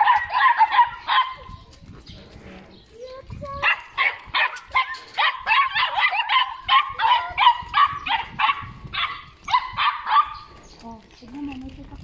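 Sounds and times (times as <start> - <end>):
dog barking rapidly: 0.0 - 1.5, 3.6 - 10.5.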